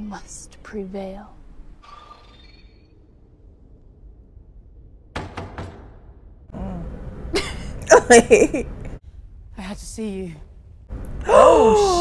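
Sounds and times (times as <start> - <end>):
sharp knocks: 5.1 - 6.3.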